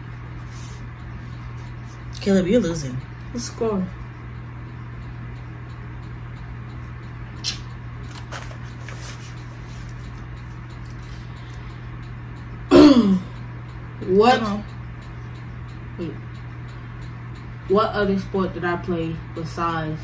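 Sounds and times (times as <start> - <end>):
low room hum: 0.0 - 20.0
person clearing throat: 12.7 - 13.3.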